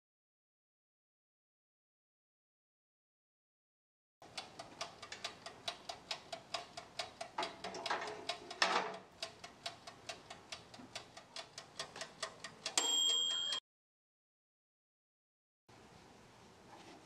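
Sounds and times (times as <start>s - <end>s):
dial timer ticking: 4.2s - 13.6s
pie tin rattling on rack: 7.4s - 9.0s
timer bell ding: 12.8s - 13.6s.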